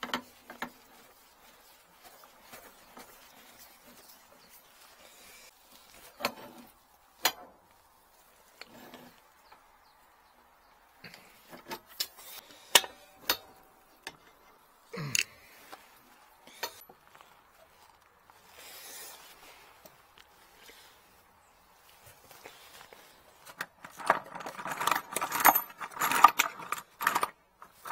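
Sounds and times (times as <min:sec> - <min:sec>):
metal pipes clinking and knocking: 0:00.0 - 0:03.4, 0:11.1 - 0:14.6, 0:23.5 - 0:27.9
soft rustle: 0:00.0 - 0:24.0.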